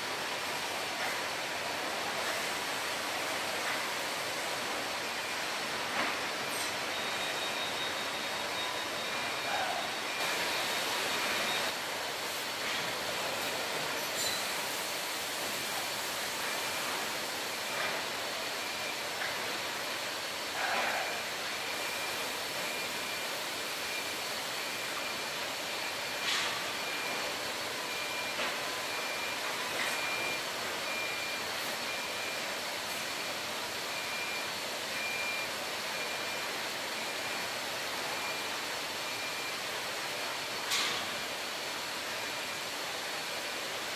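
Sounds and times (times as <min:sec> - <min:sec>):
machine noise: 0:00.0 - 0:19.6.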